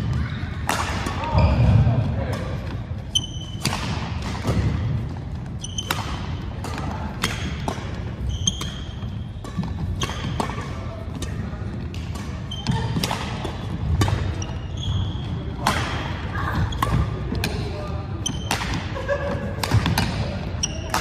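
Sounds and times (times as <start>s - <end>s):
racket striking shuttlecock: 0.6s - 1.3s, 3.4s - 4.8s, 5.8s - 14.4s, 15.6s - 16.1s, 18.3s - 18.9s, 19.6s - 20.2s
sneakers squeaking on wooden floor: 1.2s - 2.1s, 2.7s - 10.7s, 11.9s - 18.8s, 19.7s - 21.0s.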